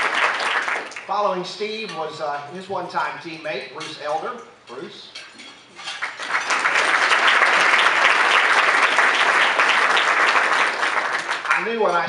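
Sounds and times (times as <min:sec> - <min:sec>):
audience applauding: 0:00.0 - 0:01.1, 0:06.0 - 0:11.9.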